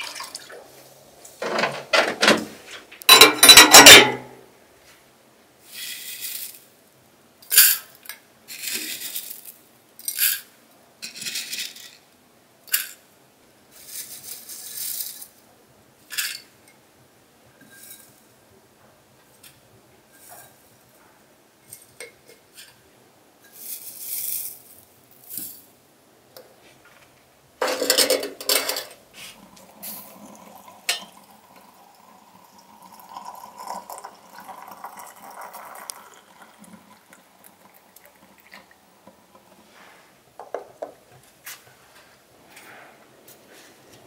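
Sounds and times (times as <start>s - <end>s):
hot water pouring into teapot: 0.0s - 0.7s, 29.4s - 39.6s
glass teapot and crockery clinking: 3.1s - 4.3s, 30.0s - 38.8s.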